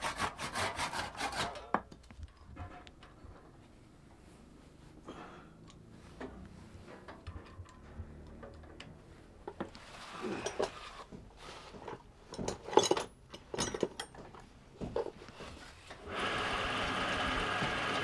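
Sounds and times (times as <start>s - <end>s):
tools and wood knocking: 6.2s - 9.8s, 10.4s - 15.2s
drill press motor running: 16.0s - 18.0s.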